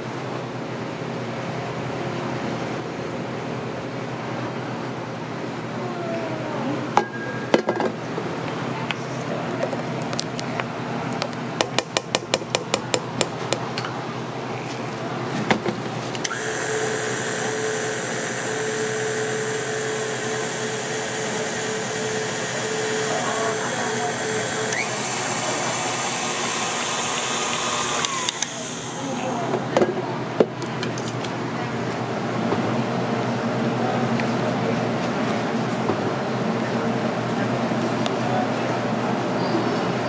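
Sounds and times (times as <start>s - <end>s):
stand mixer motor whine: 16.3s - 29.6s.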